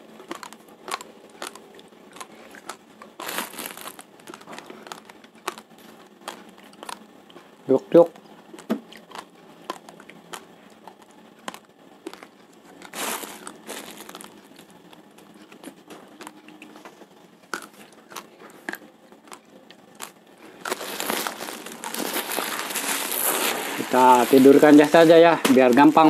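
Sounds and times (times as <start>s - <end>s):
plastic sack rustling: 3.2s - 5.6s, 12.8s - 14.6s, 20.5s - 26.0s.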